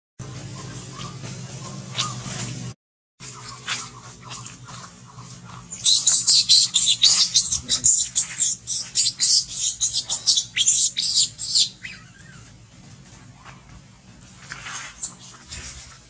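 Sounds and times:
baby monkey crying: 5.7 - 12.5.

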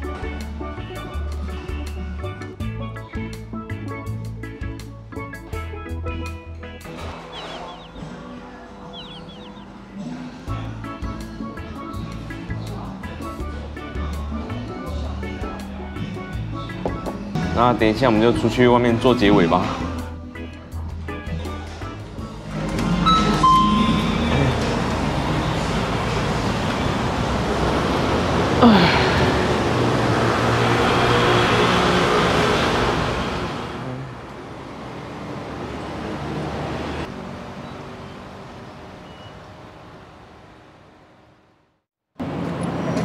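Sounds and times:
city street traffic: 0.0 - 43.0
vehicle passing by: 22.5 - 40.7.

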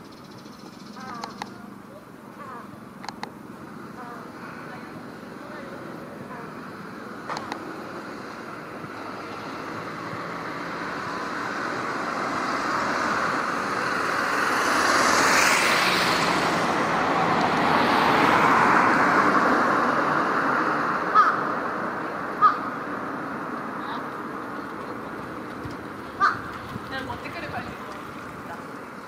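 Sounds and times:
road traffic passing: 0.0 - 29.0
crow calling: 0.4 - 1.6, 2.3 - 2.8, 21.1 - 21.5, 22.4 - 22.8, 23.8 - 27.3.

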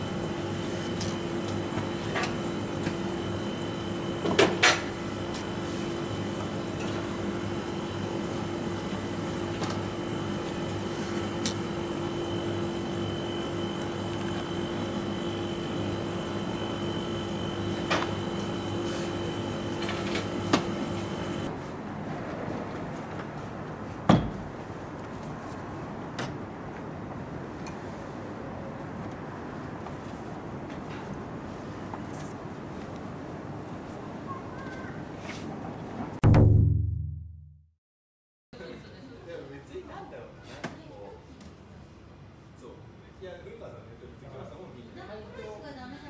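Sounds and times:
kitchen machinery humming: 0.0 - 21.5
sharp knocks: 36.2 - 37.2.

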